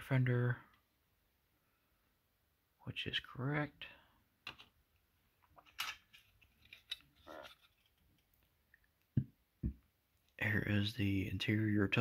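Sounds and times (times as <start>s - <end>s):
plastic parts clicking and scraping: 5.4s - 8.5s.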